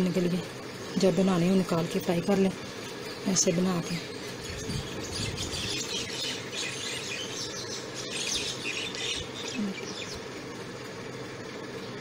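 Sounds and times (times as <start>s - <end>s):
birds chirping: 0.0s - 12.0s
steady low hum: 0.0s - 12.0s.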